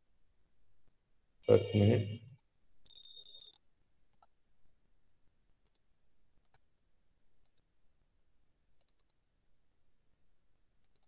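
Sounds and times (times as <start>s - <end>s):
computer mouse clicks: 2.3s - 4.4s, 5.6s - 6.7s, 7.3s - 7.7s, 8.8s - 9.2s, 10.8s - 11.0s.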